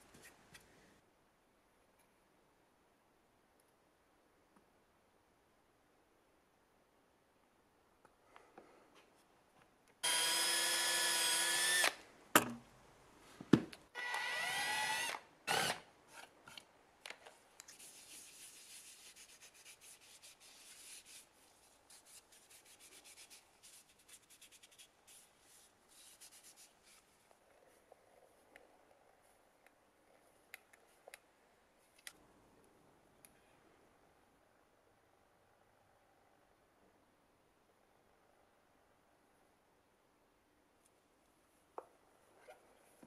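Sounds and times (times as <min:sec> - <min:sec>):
power drill running: 0:10.0 - 0:12.0, 0:14.0 - 0:15.8.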